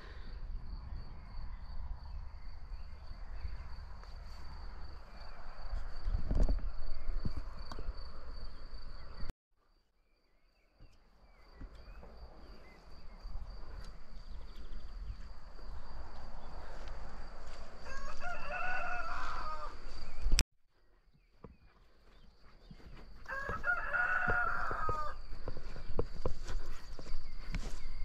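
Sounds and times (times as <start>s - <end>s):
rooster crowing: 17.8s - 20.1s, 23.2s - 25.2s.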